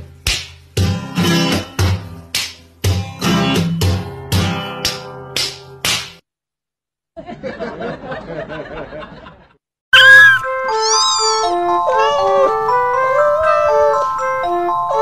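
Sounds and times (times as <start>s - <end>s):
strummed guitar: 0.8s - 5.2s
bright loud tune: 10.0s - 15.0s.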